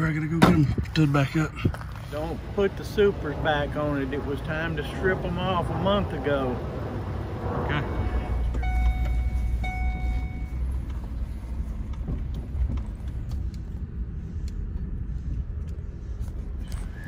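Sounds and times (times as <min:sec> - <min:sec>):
vehicle cabin engine rumble: 0:00.0 - 0:17.0
electronic chime tones: 0:08.5 - 0:10.6.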